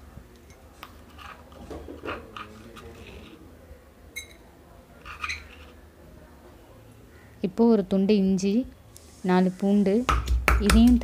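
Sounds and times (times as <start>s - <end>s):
spoon scraping stone mortar: 5.0s - 5.8s.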